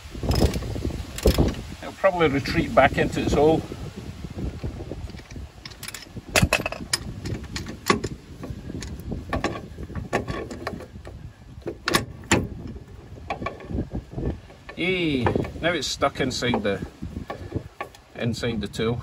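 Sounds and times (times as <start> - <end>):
metallic clicks and clinks: 5.0 - 8.2.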